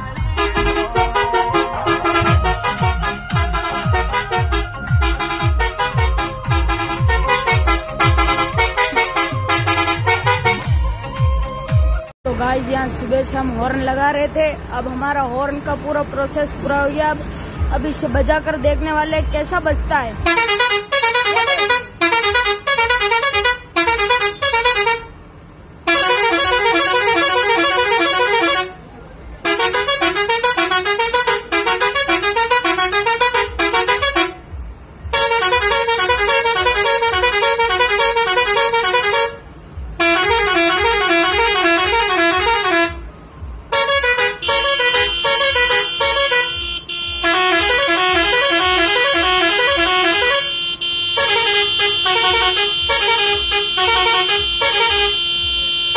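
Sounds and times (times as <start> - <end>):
held horn note: 0.0 - 10.9
truck musical horn warbling tune: 0.0 - 12.1, 20.2 - 55.9.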